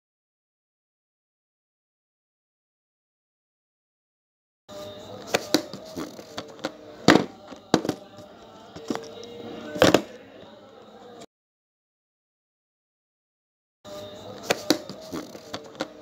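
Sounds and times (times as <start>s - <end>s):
faint background music: 4.7s - 11.3s, 13.9s - 16.0s.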